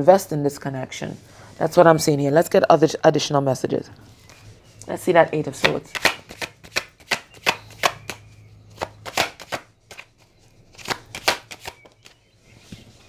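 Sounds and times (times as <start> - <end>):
cards being shuffled: 5.6 - 8.2, 8.8 - 13.0.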